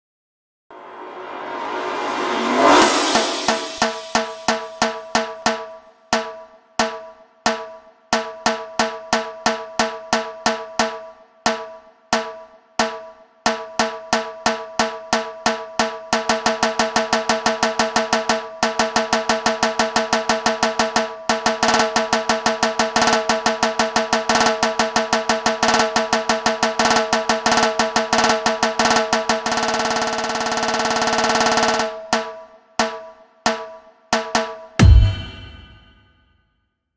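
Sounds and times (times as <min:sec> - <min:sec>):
steady pitched ring: 0:00.7 - 0:04.8, 0:34.8 - 0:36.0
drumming in a dance track: 0:34.2 - 0:36.0.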